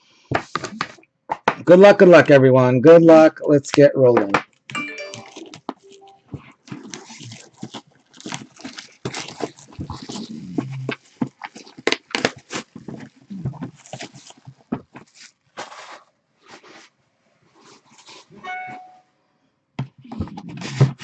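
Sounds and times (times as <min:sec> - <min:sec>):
cardboard boxes scraping: 0:06.4 - 0:16.9.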